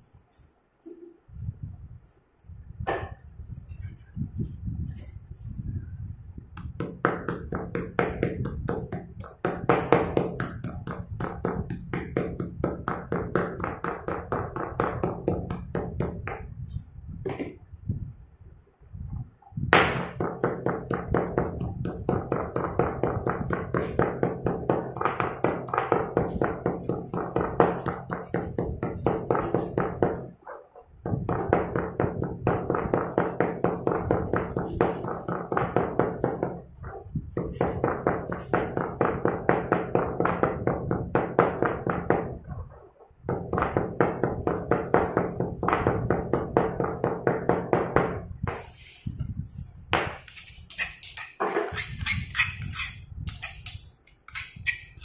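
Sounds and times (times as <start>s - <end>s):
pestle pounding in stone mortar: 6.6s - 16.5s, 19.7s - 30.4s, 31.0s - 42.5s, 43.2s - 48.6s.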